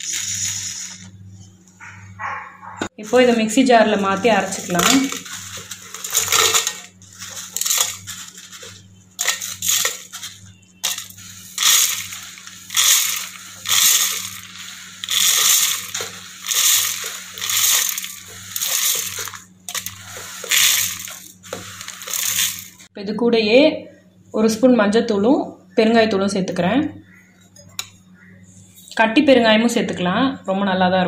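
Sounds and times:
seeds rattling against metal jar: 0.0 - 1.1, 3.0 - 22.9
plate scraping: 3.1 - 22.8.

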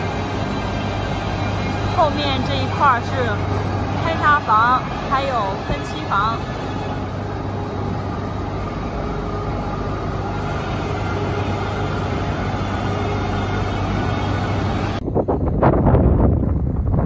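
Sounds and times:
factory machinery hum: 0.0 - 17.0
wind buffeting microphone: 14.7 - 17.0.

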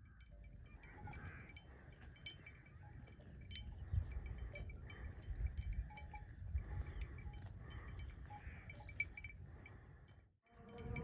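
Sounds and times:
wind rumble on microphone: 0.0 - 8.3, 10.6 - 11.0
livestock bells tinkling: 0.0 - 11.0.

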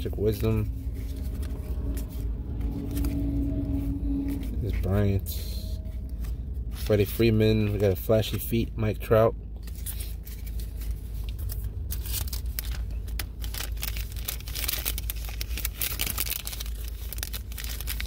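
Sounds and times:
low steady hum: 0.0 - 18.0
plastic wrapper crinkling: 9.6 - 18.0.

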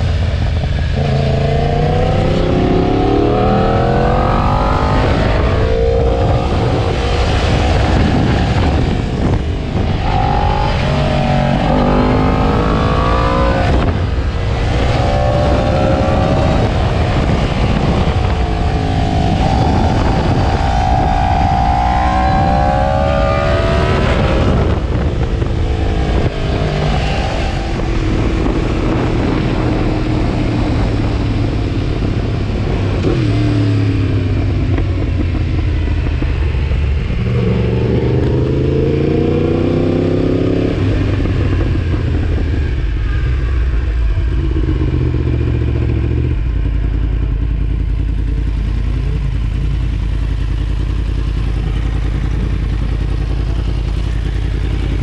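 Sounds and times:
motorcycle engine revving: 0.0 - 55.0
motorcycle engine idling: 41.6 - 55.0.

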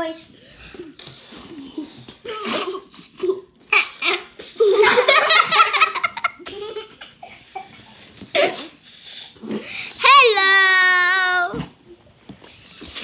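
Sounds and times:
children laughing: 3.8 - 8.8.

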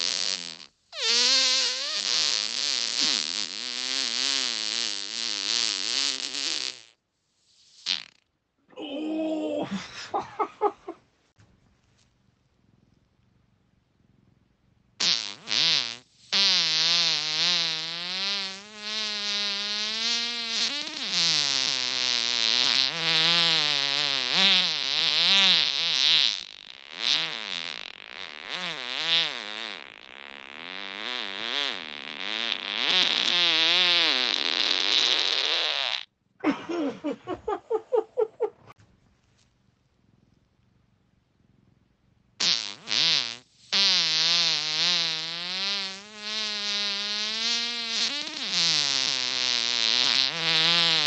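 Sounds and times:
long wavering fart: 0.0 - 7.0, 7.8 - 11.0, 15.0 - 36.1, 42.4 - 51.0.

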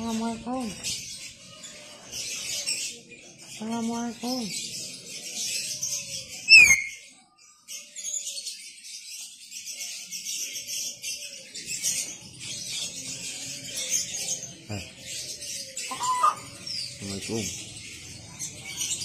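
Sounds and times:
high-pitched chirping: 6.5 - 7.0, 15.9 - 16.6.

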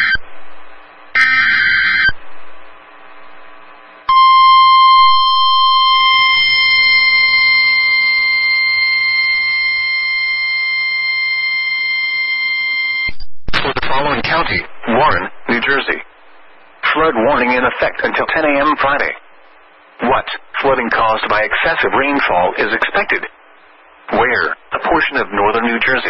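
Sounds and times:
warbling data screech: 0.0 - 0.2, 1.2 - 2.2, 4.1 - 13.1
steady alarm tone: 1.1 - 2.3, 4.1 - 13.1
faint radio hiss: 13.5 - 26.0.

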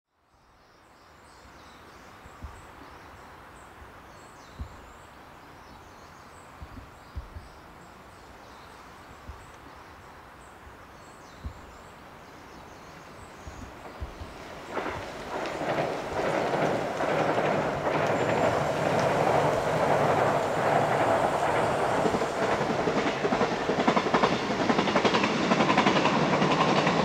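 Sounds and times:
soft hiss: 0.3 - 23.8
soft low thumps: 4.5 - 4.9, 6.6 - 7.6, 13.5 - 14.4.

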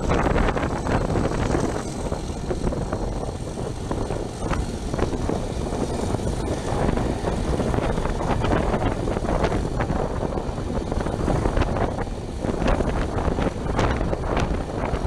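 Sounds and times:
diesel locomotive engine droning: 0.0 - 15.0
rushing air: 0.0 - 15.0
wheel noise on track: 0.0 - 15.0.

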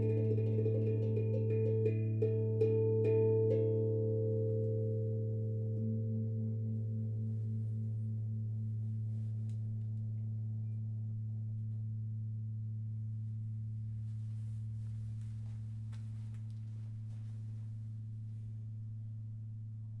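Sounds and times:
tongue drum ringing: 0.0 - 11.1
rustles and light knocks: 14.1 - 18.0.

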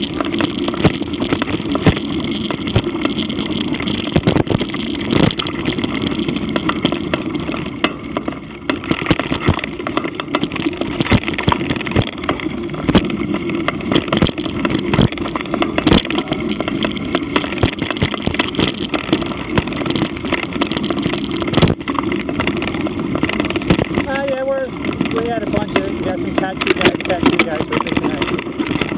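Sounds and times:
bike rattling over bumps: 0.0 - 28.9
bike tyres rumbling on dirt: 0.0 - 28.9.

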